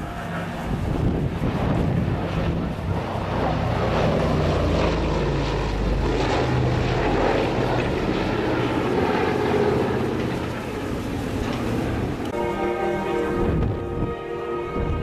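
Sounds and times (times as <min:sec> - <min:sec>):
propeller plane droning past: 0:00.0 - 0:15.0.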